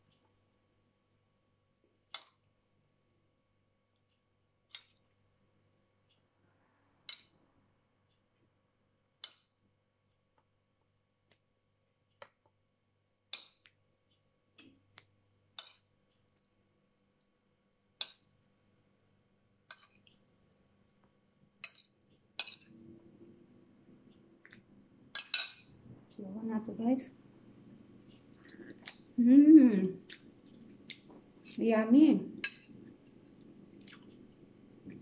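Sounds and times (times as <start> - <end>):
metal spoon clinking on plate: 21.6 - 22.7, 25.1 - 25.7.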